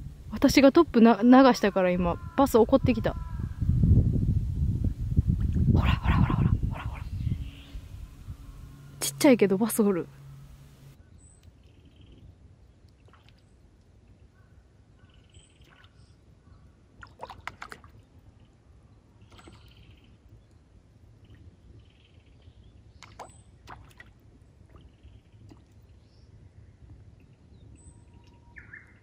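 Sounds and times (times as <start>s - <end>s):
lure splashing on water: 12.8s - 13.9s, 17.0s - 18.0s, 23.0s - 25.8s
sharp splashy clicks: 17.0s - 18.0s.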